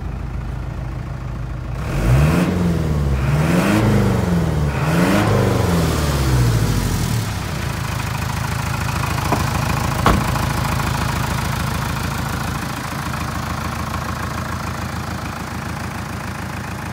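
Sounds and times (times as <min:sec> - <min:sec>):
truck engine idling: 0:00.0 - 0:01.8, 0:06.8 - 0:16.9
cab door shutting: 0:09.0 - 0:11.2.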